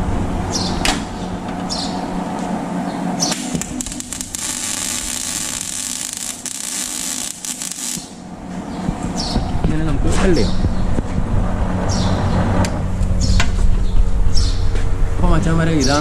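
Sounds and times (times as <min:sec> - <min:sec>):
welding arc crackling sizzle: 0:03.2 - 0:08.2.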